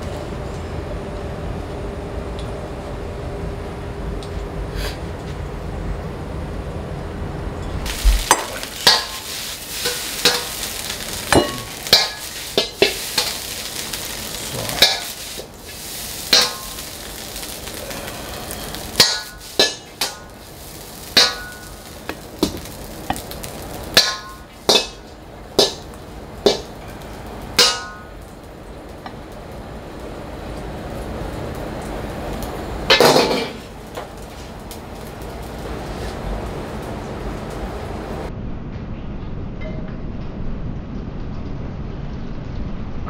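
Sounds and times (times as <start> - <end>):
frying sizzle: 7.8 - 38.3
metal ladle clanking on wok: 8.2 - 13.5, 14.7 - 15.2, 16.3 - 16.8, 21.2 - 21.8, 24.0 - 25.9, 27.6 - 28.2.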